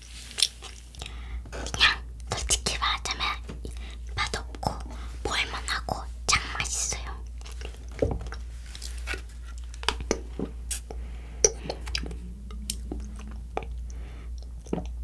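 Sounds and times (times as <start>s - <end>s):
wet mouth clicks and chewing: 7.2s - 15.0s.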